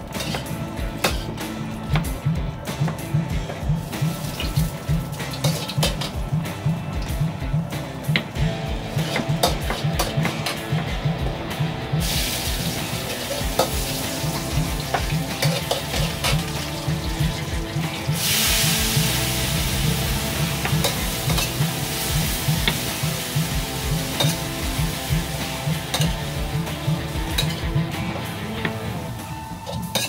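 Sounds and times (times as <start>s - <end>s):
background music with steady beat: 0.0s - 30.0s
burst of hiss: 18.1s - 25.7s.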